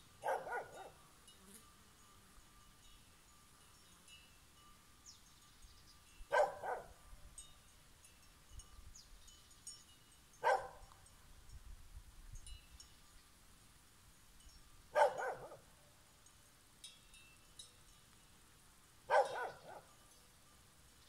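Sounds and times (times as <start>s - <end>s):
dog barking: 0.2s - 1.0s, 6.3s - 6.9s, 10.4s - 10.9s, 14.9s - 15.7s, 19.1s - 19.9s
faint high clinks: 0.8s - 13.4s, 16.1s - 21.0s.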